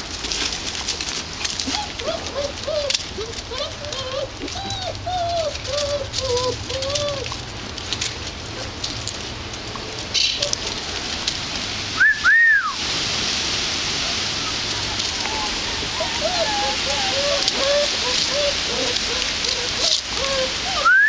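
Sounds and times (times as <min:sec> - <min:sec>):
puppies yipping: 0:01.0 - 0:08.8, 0:10.1 - 0:10.8, 0:13.9 - 0:21.0
steady hiss: 0:09.3 - 0:20.9.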